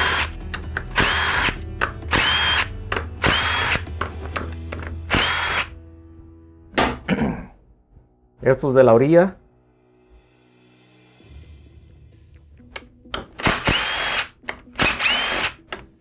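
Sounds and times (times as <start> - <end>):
impact wrench whining: 0.0 - 5.8, 13.2 - 15.8.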